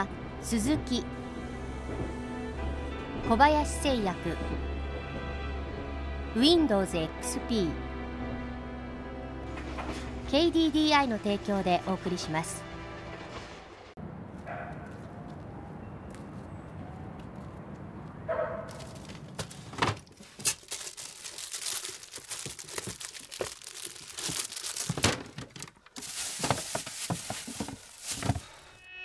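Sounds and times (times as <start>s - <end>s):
papers rustling and crinkling: 18.7s - 28.7s.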